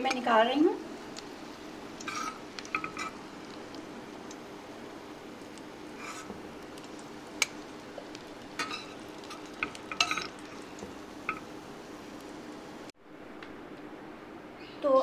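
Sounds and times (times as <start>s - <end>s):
food sizzling in hot oil: 0.0s - 12.9s
metal spoon clinking on a pan: 2.0s - 3.2s, 8.6s - 10.4s.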